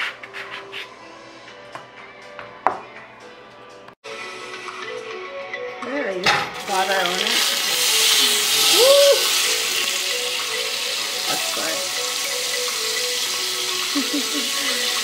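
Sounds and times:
butter sizzling in a pot: 6.4s - 15.0s.

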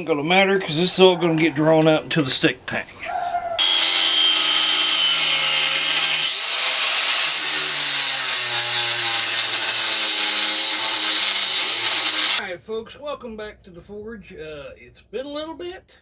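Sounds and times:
angle grinder cutting metal: 3.6s - 12.4s.

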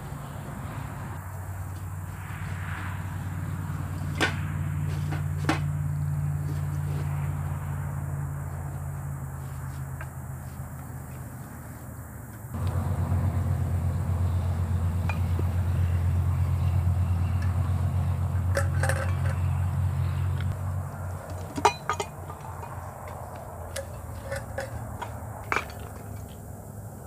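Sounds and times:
metal camping gear clinking: 4.0s - 7.1s, 15.0s - 26.5s
low steady rumble: 12.5s - 26.2s.

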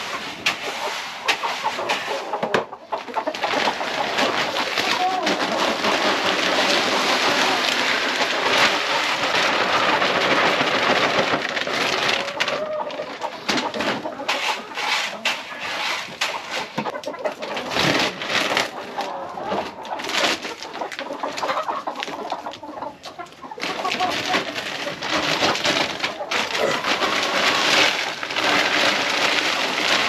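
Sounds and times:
chickens clucking: 0.0s - 30.0s
dry feed pouring into bucket: 0.0s - 30.0s
feed bag scraping and rustling: 23.6s - 30.0s.

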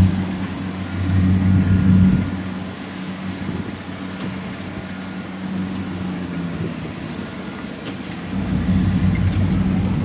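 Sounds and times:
combine harvester engine drone: 0.0s - 10.0s
loud low rumble: 8.3s - 10.0s.

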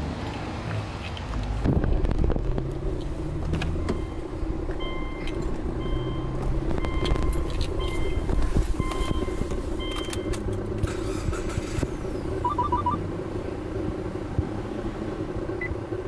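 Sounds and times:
steady low rumble: 1.4s - 16.0s
car warning chime beeping: 3.7s - 10.6s, 12.4s - 13.0s, 15.6s - 15.8s.

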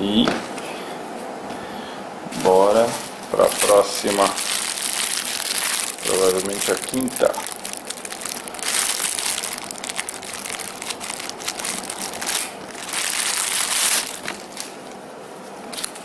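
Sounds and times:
plastic packaging bag crinkling: 2.4s - 15.0s.

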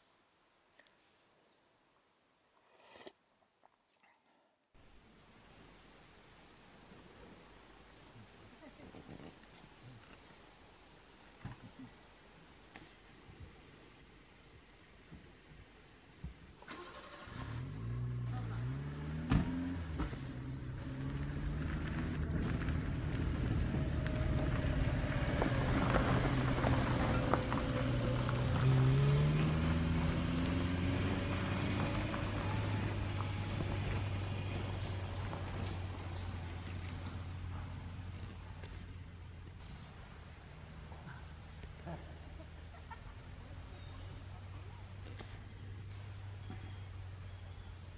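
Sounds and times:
vehicle engine passing: 16.7s - 47.9s.

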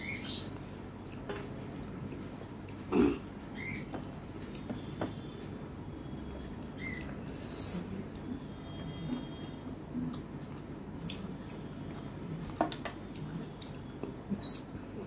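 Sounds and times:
chewing: 0.6s - 4.9s.

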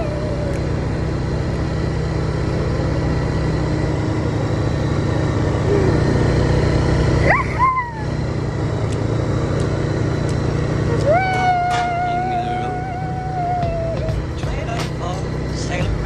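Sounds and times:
atv engine running: 0.0s - 16.0s
child yelling: 10.9s - 14.1s.

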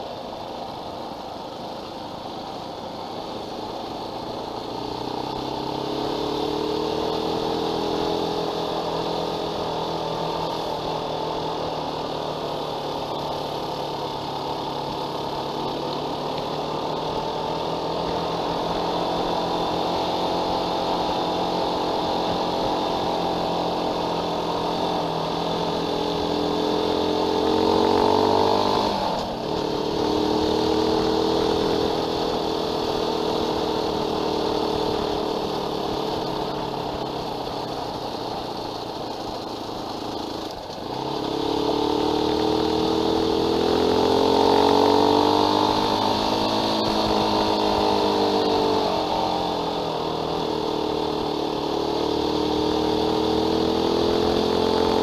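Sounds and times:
motorcycle engine accelerating: 0.0s - 55.0s.

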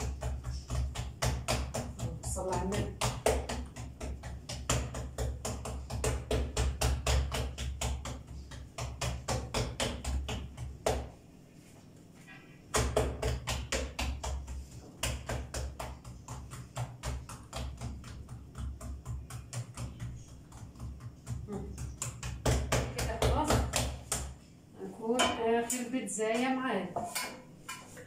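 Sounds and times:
hands slapping pizza dough: 0.0s - 11.8s, 12.7s - 24.5s.

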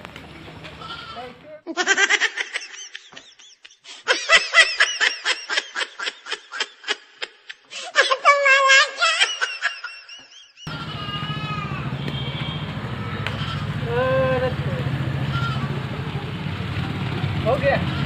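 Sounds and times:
person laughing: 1.6s - 10.7s.

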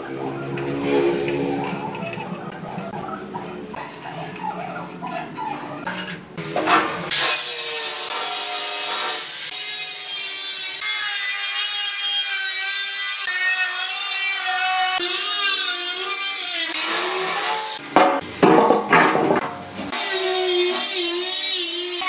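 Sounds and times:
angle grinder cutting steel: 3.5s - 17.8s, 19.9s - 22.0s.

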